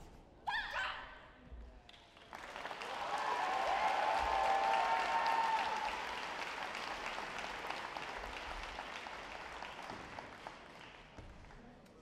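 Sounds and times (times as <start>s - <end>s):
audience applauding: 2.2s - 11.2s.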